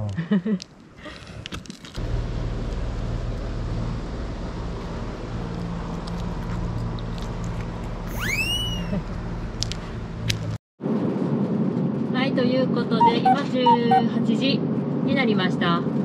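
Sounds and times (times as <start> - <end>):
outdoor noise: 0.0 - 16.0
low engine hum: 2.0 - 12.1.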